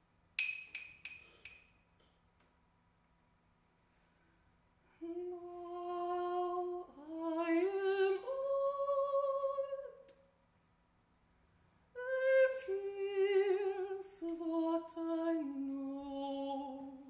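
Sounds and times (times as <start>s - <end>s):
woman singing long notes: 5.0s - 10.0s, 12.0s - 17.0s.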